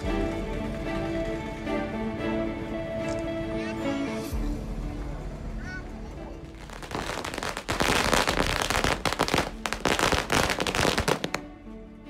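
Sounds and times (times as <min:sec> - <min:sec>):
firecrackers crackling: 0:06.6 - 0:11.5.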